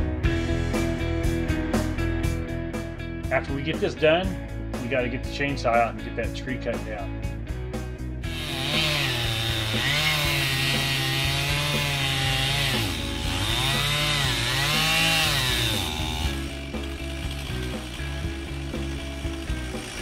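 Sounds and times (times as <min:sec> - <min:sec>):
chainsaw cutting into tree: 0:08.2 - 0:20.0.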